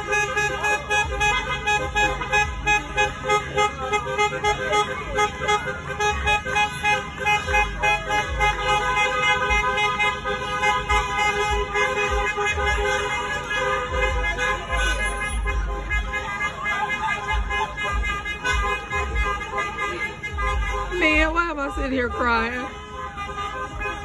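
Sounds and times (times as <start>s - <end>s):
car horns honking: 0.0s - 24.0s
voices calling out: 0.0s - 24.0s.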